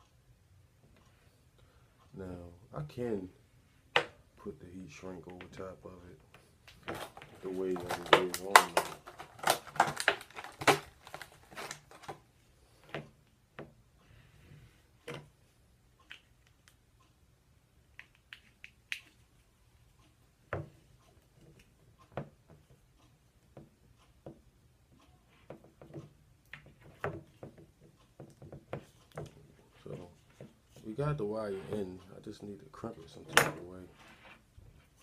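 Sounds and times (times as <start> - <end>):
handling rustles: 6.3 - 13.0.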